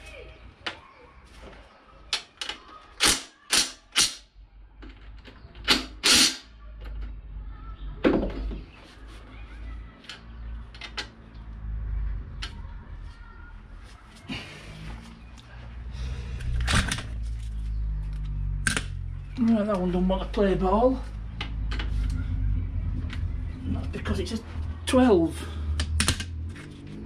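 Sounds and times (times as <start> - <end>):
impact wrench bursts: 5.7 - 6.5.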